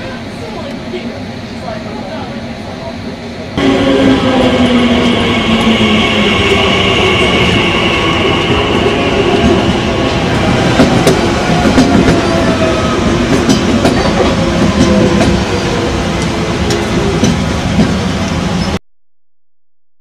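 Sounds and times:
electric train running hum: 0.0 - 18.8
train wheels clicking over rail joints: 10.3 - 15.4, 16.2 - 18.7.

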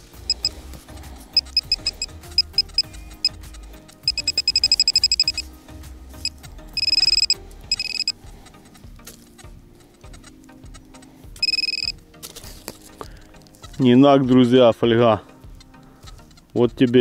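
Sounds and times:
metal detector beeping: 0.3 - 0.6, 1.4 - 3.4, 4.0 - 5.5, 6.2 - 8.2, 11.4 - 12.0.

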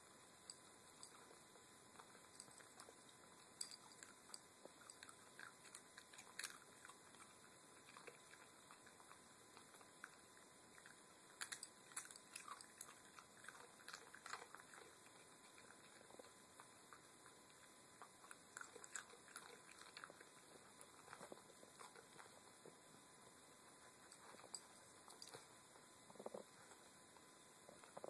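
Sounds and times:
dog crunching chips: 2.0 - 22.4.

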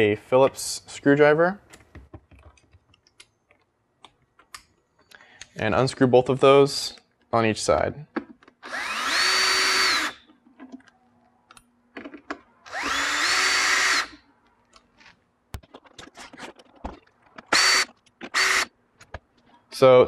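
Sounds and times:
cordless drill whirring: 8.6 - 10.2, 12.6 - 14.2, 17.5 - 18.7.

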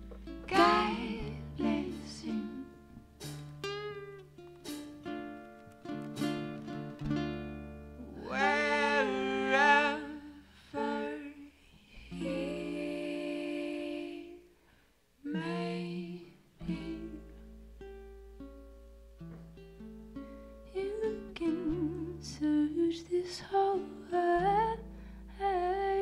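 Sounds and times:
upright bass notes: 0.0 - 10.1
plucked ukulele: 0.0 - 11.4, 12.1 - 14.4, 15.3 - 26.0
wordless singing with vibrato: 0.4 - 3.0, 8.0 - 17.5, 20.7 - 26.0.

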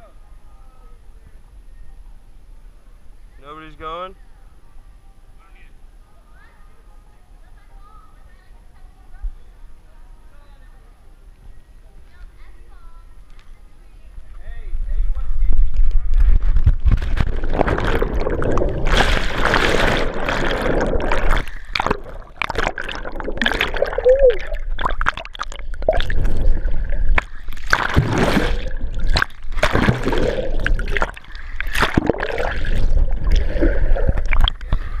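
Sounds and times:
underwater bubbles rushing: 15.8 - 35.0
swimming strokes swishing: 17.2 - 34.6.

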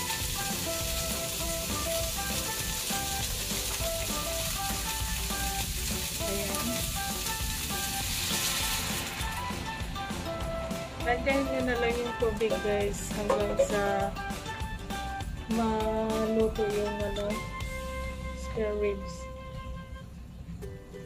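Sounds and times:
water hissing in hot pan: 0.0 - 10.3
ribs sizzling in a pan: 0.0 - 10.6.

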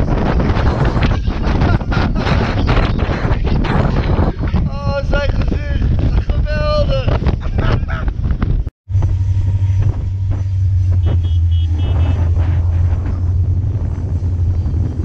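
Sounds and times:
high squeal: 8.9 - 15.0
train rumbling: 8.9 - 15.0.

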